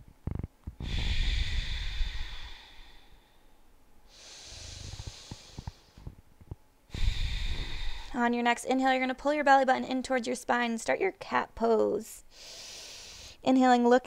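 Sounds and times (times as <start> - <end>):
person breathing through nose: 0.8 - 6.0, 6.9 - 8.2, 12.3 - 13.4.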